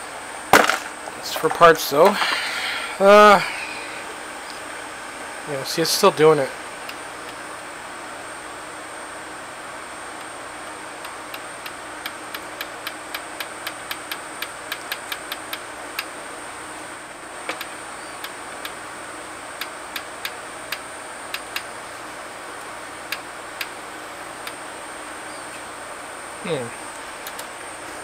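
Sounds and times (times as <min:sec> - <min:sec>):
faint steady hum: 0:00.0 - 0:28.0
cd player mechanism ticking: 0:11.0 - 0:16.1, 0:19.6 - 0:21.7.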